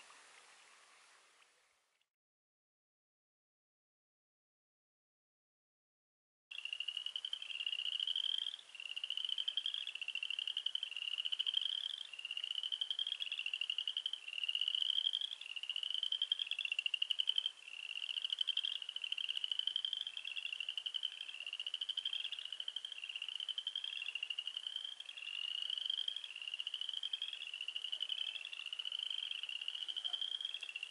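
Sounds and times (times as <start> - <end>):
frogs trilling: 6.5 - 30.9.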